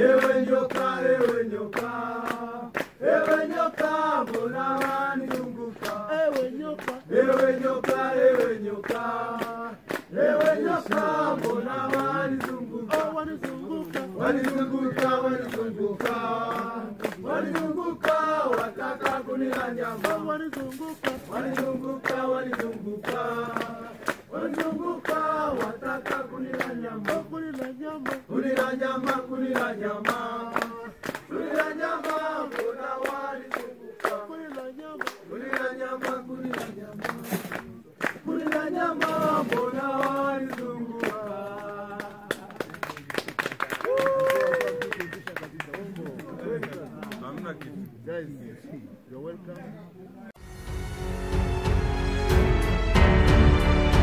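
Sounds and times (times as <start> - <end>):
men singing together: 0.0 - 42.6
hand-clapping: 0.0 - 47.9.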